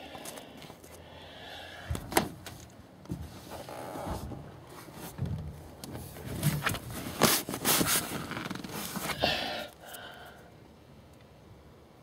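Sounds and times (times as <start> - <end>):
scraping and rustling in plastic cubby: 6.0 - 9.2.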